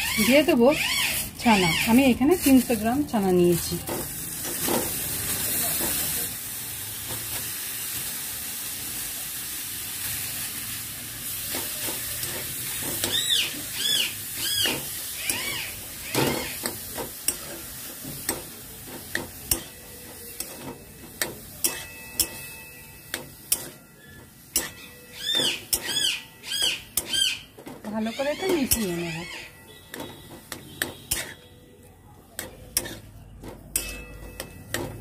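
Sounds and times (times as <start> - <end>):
metal spatula scraping a pan: 0.0 - 6.2, 11.2 - 31.7, 32.4 - 35.0
food sizzling in a pan: 0.0 - 31.5, 32.4 - 33.2
high chirping calls: 13.1 - 16.6, 24.7 - 29.6.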